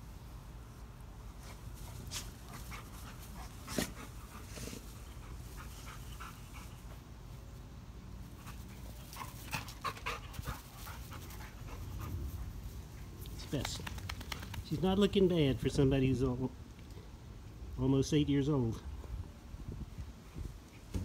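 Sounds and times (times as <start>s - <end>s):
dogs panting: 1.4s - 7.2s, 8.3s - 13.3s.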